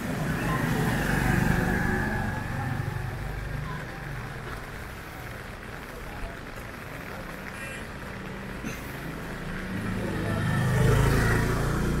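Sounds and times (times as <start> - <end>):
vehicle engine passing: 0.0 - 5.9, 9.1 - 12.0
street noise: 0.0 - 12.0.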